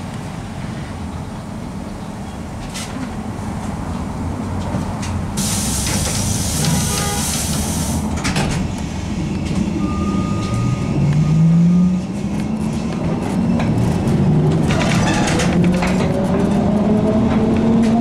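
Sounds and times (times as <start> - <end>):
compressed air hiss: 5.4 - 8.1.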